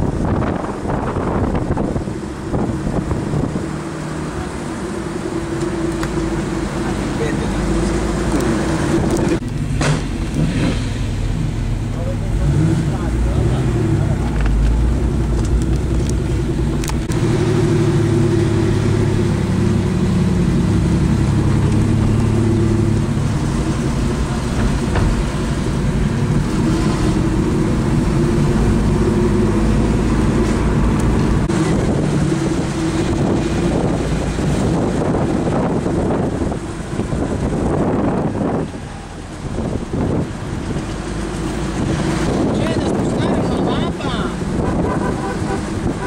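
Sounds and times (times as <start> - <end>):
car engine from inside cabin: 0.0 - 46.0
road noise: 0.0 - 46.0.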